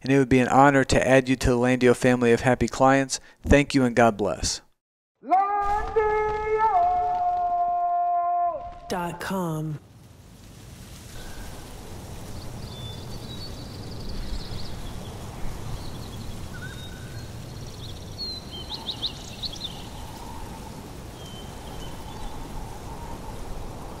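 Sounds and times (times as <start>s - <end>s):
small birds chirping: 12.2s - 23.5s.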